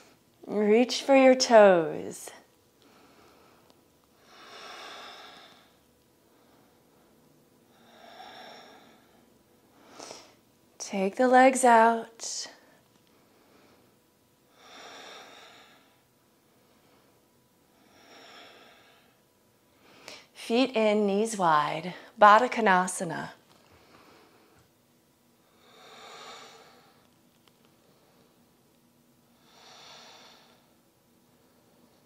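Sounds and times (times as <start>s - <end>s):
woman breathing slowly: 2.8s - 10.5s, 12.6s - 20.4s, 23.6s - 24.7s, 25.4s - 28.6s, 29.2s - 32.0s.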